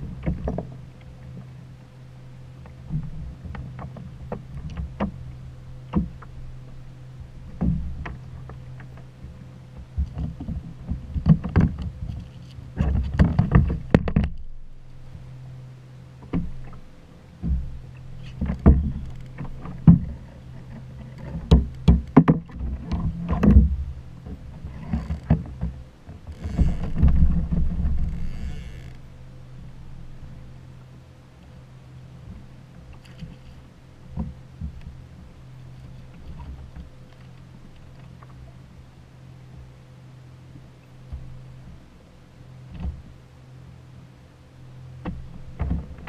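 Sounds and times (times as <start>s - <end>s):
steady low hum: 0.0s - 46.0s
knocks against plastic kayak hull: 21.4s - 23.7s.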